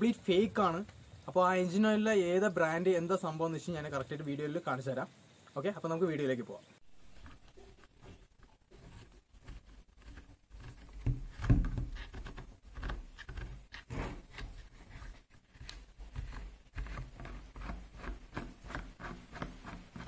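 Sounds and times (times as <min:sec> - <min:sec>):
plastic cap rasping and clicking: 0:07.0 - 0:20.0.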